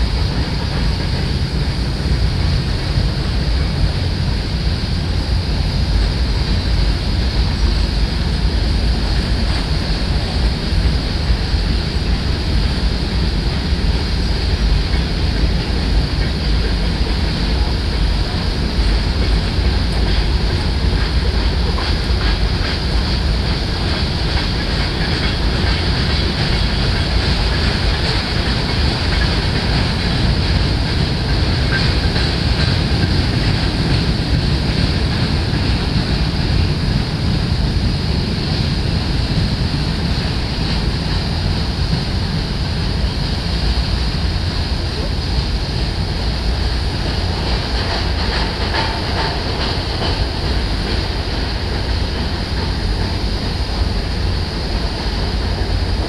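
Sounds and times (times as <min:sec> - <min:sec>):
freight train rumbling on rails: 0:00.0 - 0:56.0.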